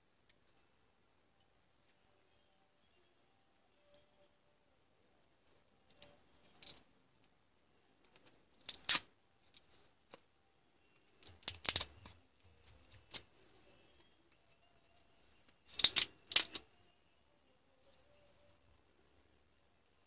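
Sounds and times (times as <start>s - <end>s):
battery cells clicking: 11.1s - 13.3s, 15.6s - 16.6s.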